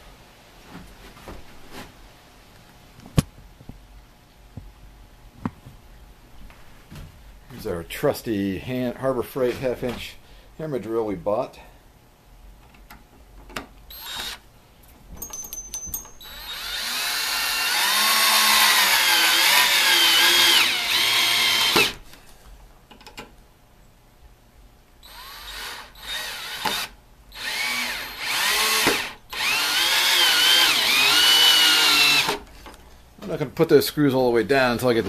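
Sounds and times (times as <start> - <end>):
drill motor driving screws: 13.9 - 14.4, 16.2 - 22.0, 25.0 - 32.4.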